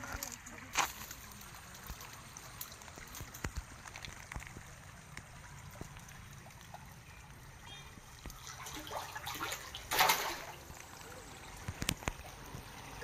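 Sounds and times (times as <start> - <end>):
faint trickling water: 0.0 - 13.0
fish splashing at surface: 8.0 - 12.6.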